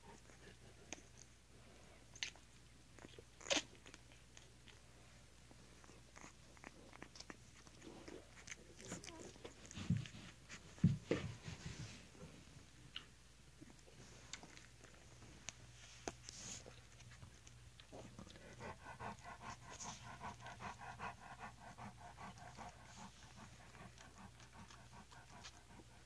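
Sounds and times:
dog panting: 0.0s - 1.3s, 7.2s - 12.1s, 16.3s - 26.0s.

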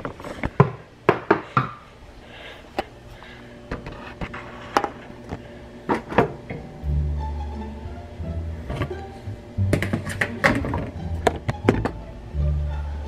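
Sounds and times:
dishes knocking and clattering: 5.9s - 6.6s, 9.7s - 12.0s.

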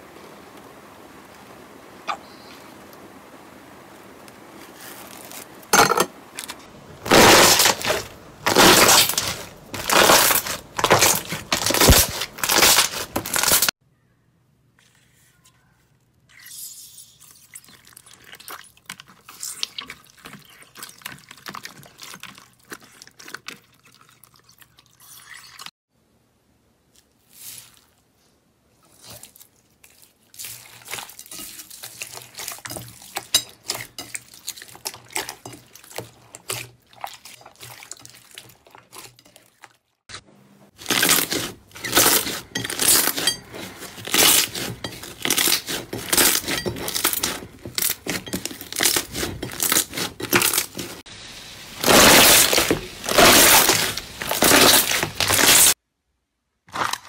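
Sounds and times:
slime squelching: 7.0s - 13.7s, 17.4s - 25.0s, 28.8s - 40.0s, 40.7s - 55.8s.

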